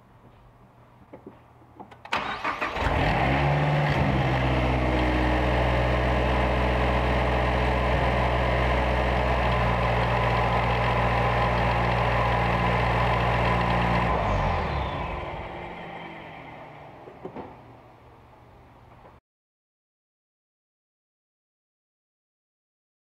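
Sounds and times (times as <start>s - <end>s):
car engine idling: 2.2s - 18.3s.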